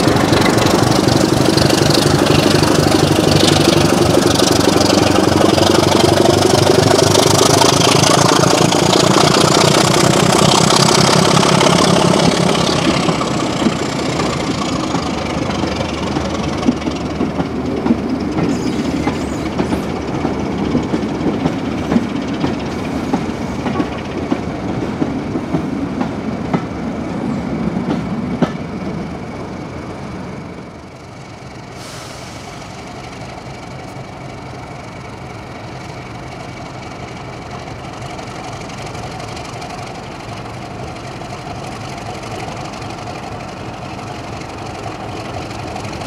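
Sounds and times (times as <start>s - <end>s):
train wheels clicking over rail joints: 0.0s - 27.0s, 27.6s - 28.9s
diesel locomotive engine: 0.0s - 46.0s.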